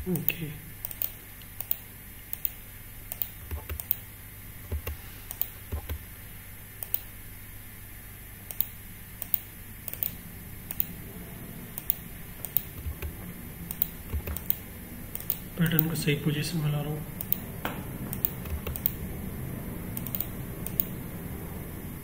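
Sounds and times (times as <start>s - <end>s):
steady low hum: 0.0s - 22.0s
keyboard and mouse clicks: 0.2s - 4.0s, 4.6s - 6.1s, 6.8s - 7.1s, 8.5s - 11.0s, 11.8s - 15.9s, 17.2s - 17.5s, 18.1s - 19.0s, 20.0s - 20.9s.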